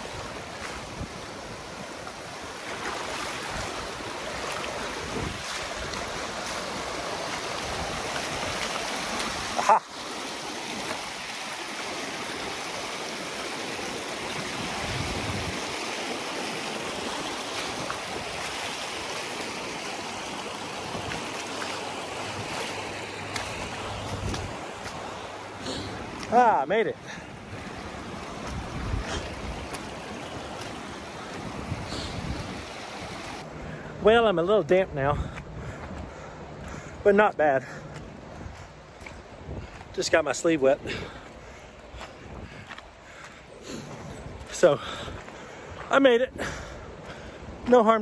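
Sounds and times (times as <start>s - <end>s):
river rushing over rocks: 0.0s - 33.6s.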